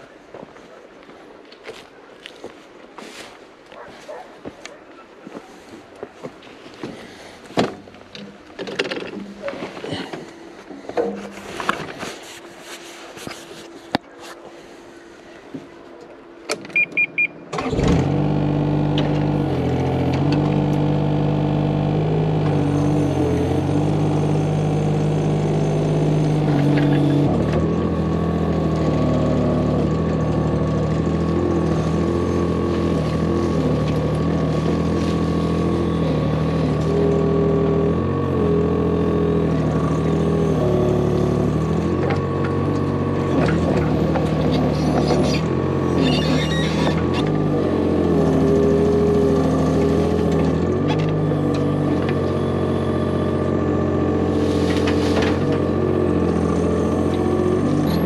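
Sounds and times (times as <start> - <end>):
diesel engine running: 2.3 - 12.4, 13.9 - 58.0
excavator digging soil: 6.5 - 15.0, 16.5 - 58.0
short beeps: 16.8 - 17.5.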